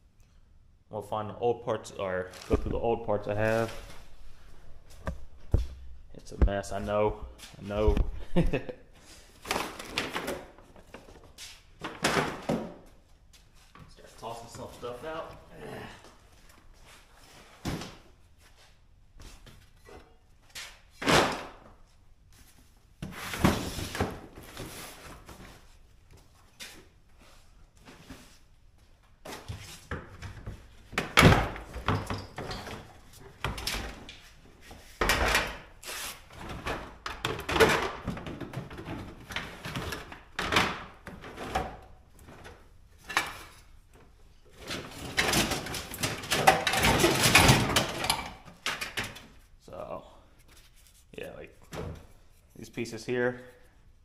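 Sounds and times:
plastic tote and car parts clattering: 44.5 - 49.4.

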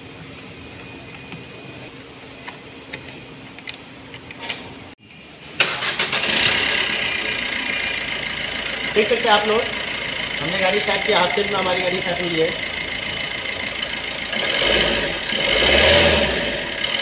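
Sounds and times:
diesel engine starting and running: 0.0 - 17.0.

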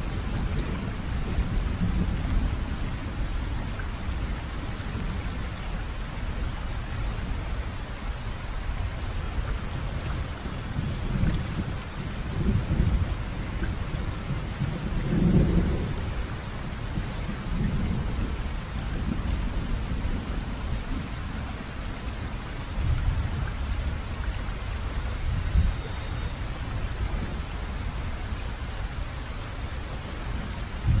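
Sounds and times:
thunder rumbling: 0.0 - 3.4, 10.5 - 21.9, 30.0 - 31.0
steady rain: 0.0 - 31.0.

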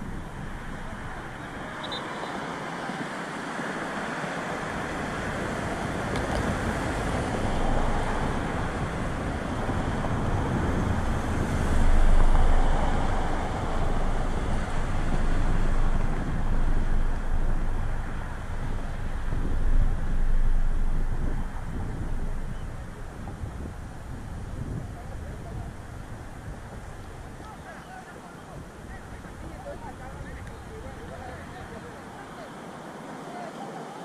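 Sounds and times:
wind buffeting microphone: 0.0 - 33.6.

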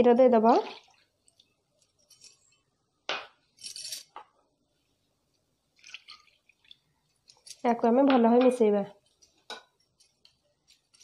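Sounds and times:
milk pouring: 5.7 - 7.5.

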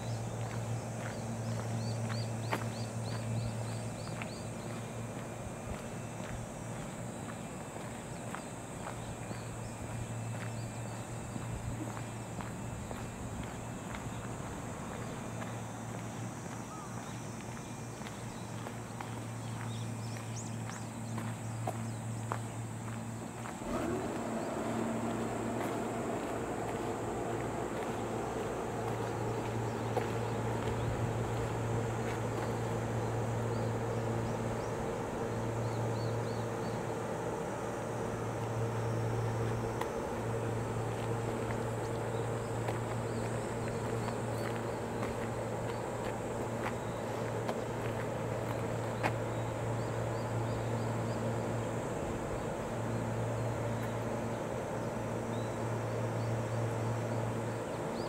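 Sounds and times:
electric train low hum: 0.0 - 58.0
faint high whine: 0.0 - 58.0.

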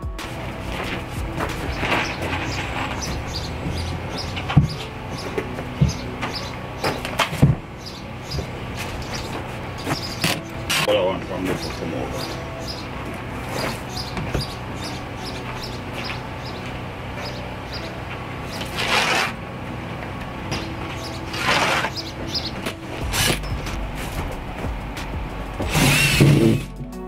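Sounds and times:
music with steady beat: 0.0 - 8.5, 22.5 - 27.0.

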